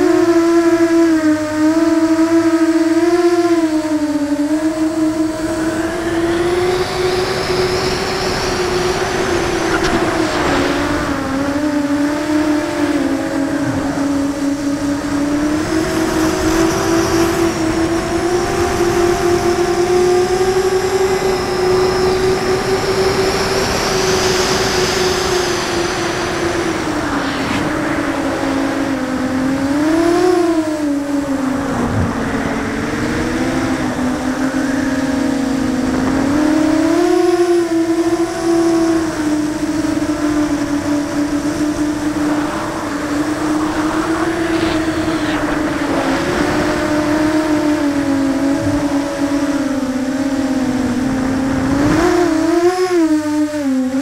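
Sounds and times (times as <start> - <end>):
drone motors whining: 0.0 - 54.0.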